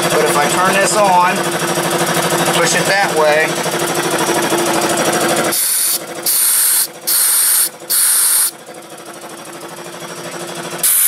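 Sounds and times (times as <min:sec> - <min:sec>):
air compressor running: 0:00.0 - 0:11.0
compressed air hissing from hose: 0:05.5 - 0:08.5.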